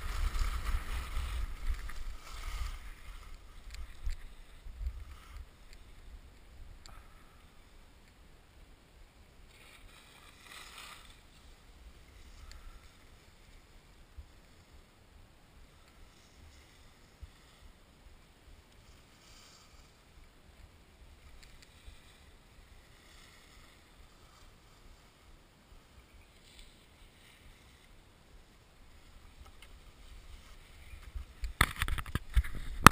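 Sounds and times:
ski edges scraping snow: 0.0 - 6.1, 9.5 - 14.9, 15.6 - 20.2, 21.0 - 32.9
skis rumbling on snow: 0.0 - 7.4, 20.8 - 32.9
faint wind rumble: 0.0 - 10.2.

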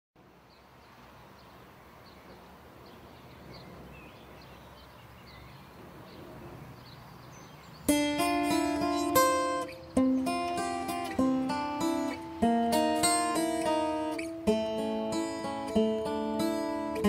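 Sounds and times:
low background noise: 0.2 - 17.0
small bird chirps: 0.5 - 10.4
acoustic guitar chord: 7.9 - 17.0.

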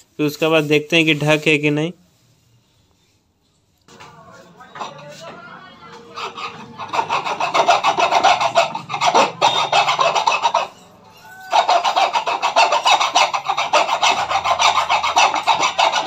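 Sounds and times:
file rasping on metal shaft: 4.7 - 16.0.

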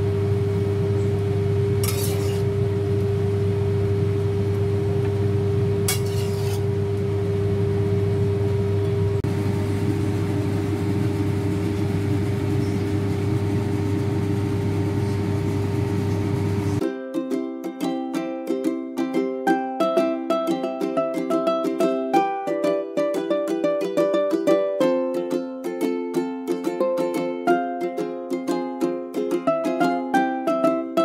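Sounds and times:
steady mechanical hum: 0.0 - 16.8
metal spatula scraping wok: 1.8 - 2.5, 5.9 - 6.8.

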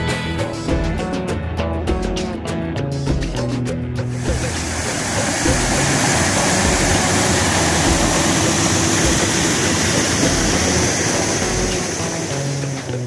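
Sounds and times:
water rushing over rocks: 4.1 - 13.0.

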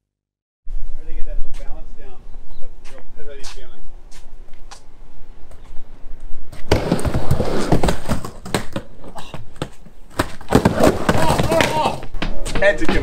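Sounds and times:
skateboard wheels rolling: 6.5 - 13.0
skateboard clacks and knocks: 6.7 - 13.0.

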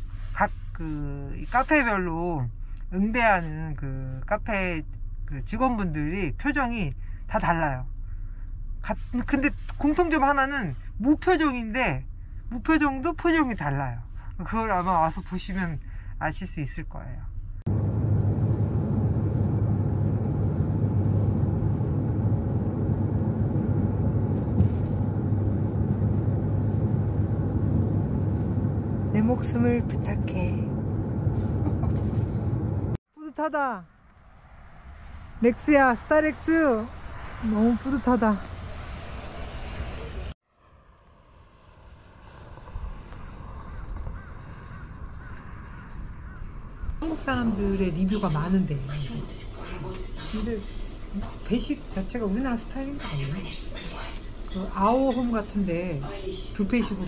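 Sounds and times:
van engine and road noise: 0.0 - 57.0
car passing: 17.7 - 33.0, 33.8 - 53.0.

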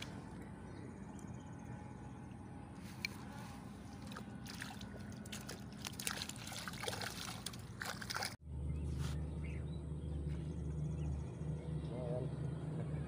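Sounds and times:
low engine hum: 0.0 - 13.0
crackling and trickling: 2.8 - 8.4.

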